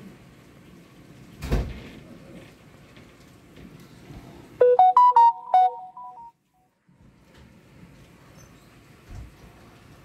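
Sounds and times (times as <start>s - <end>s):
quick electronic beeps: 4.6s - 6.3s.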